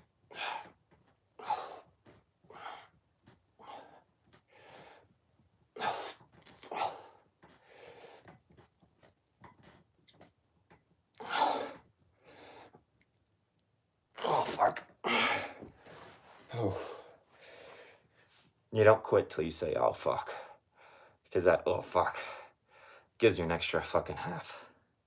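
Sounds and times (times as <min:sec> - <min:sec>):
man breathing hard: 0:00.3 - 0:00.8, 0:01.4 - 0:03.0, 0:03.6 - 0:05.1, 0:05.8 - 0:08.4, 0:11.2 - 0:12.8, 0:16.5 - 0:18.3, 0:22.2 - 0:23.1.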